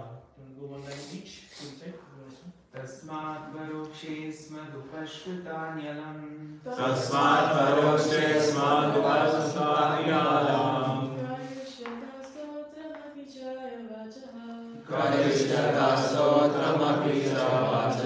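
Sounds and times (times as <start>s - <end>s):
group chanting in unison: 6.6s - 11.8s, 14.7s - 18.0s.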